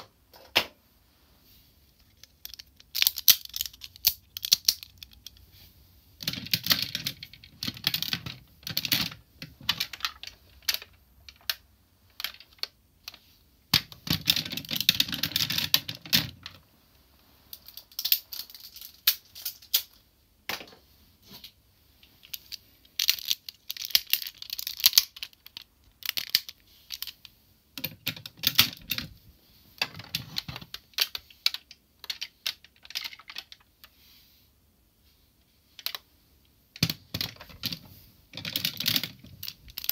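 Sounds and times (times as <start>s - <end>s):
plastic toy parts clicking: 2.0s - 5.4s, 6.2s - 16.6s, 17.5s - 20.0s, 22.2s - 29.1s, 29.8s - 33.7s, 35.8s - 36.0s, 36.8s - 39.9s.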